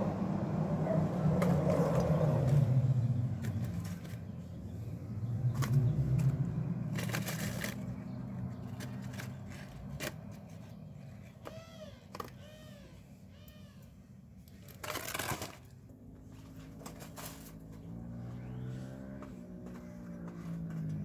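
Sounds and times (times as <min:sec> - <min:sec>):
low vehicle rumble: 0:00.0 - 0:21.0
paper rustling: 0:06.9 - 0:08.0, 0:14.6 - 0:17.6.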